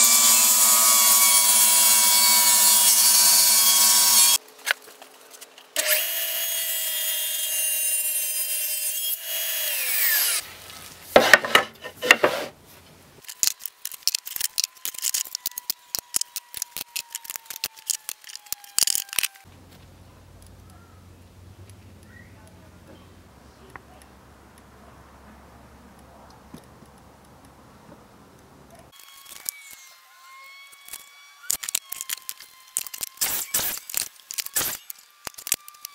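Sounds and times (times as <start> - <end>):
wood strips knocking and clattering: 11.1 - 12.5.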